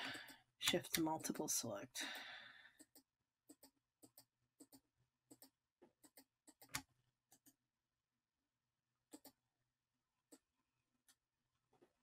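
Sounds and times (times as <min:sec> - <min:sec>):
computer mouse clicks: 0:02.8 - 0:07.6, 0:09.1 - 0:09.4.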